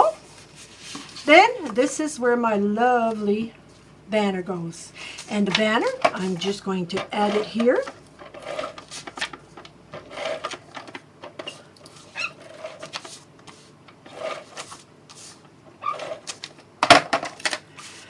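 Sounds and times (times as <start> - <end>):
paper rustling and crackling: 6.4 - 16.6.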